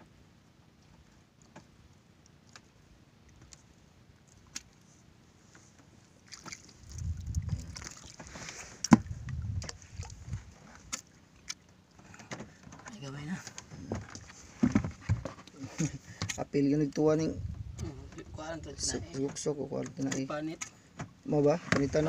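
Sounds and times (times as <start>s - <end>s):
wet splashing: 6.2s - 11.6s.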